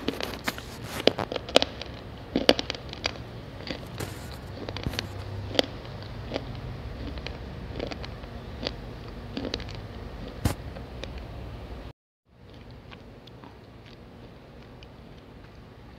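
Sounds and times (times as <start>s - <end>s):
clay crunching when chewed: 0.0s - 11.2s, 12.4s - 15.7s
low steady hum: 0.0s - 15.9s.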